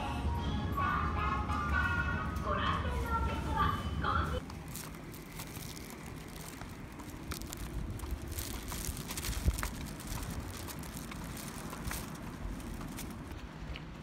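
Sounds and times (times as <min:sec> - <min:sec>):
low steady rumble: 0:00.0 - 0:14.0
plastic bag rustling: 0:04.4 - 0:13.4.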